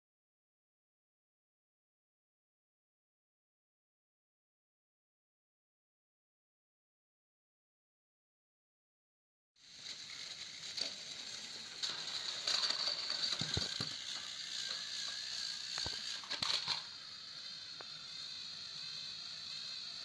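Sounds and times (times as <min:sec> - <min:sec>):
toy train motors whirring: 0:09.6 - 0:20.0
toy trains clattering off track: 0:09.6 - 0:20.0.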